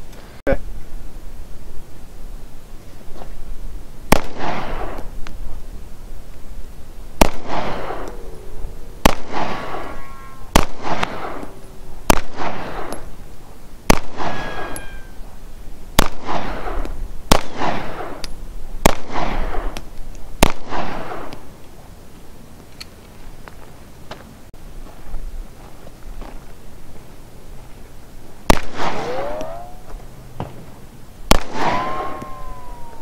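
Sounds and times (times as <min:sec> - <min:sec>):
pistol shots with echo: 0:04.1 - 0:05.0, 0:07.2 - 0:08.1, 0:09.0 - 0:11.5, 0:12.1 - 0:13.1, 0:13.9 - 0:15.2, 0:16.0 - 0:18.2, 0:18.8 - 0:19.7, 0:28.5 - 0:29.8, 0:31.3 - 0:33.0.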